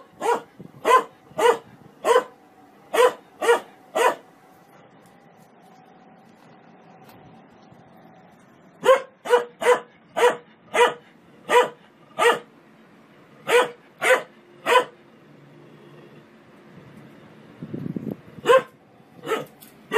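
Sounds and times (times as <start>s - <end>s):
dog barking: 0.0s - 4.2s, 8.8s - 12.5s, 13.4s - 15.0s, 18.4s - 19.6s.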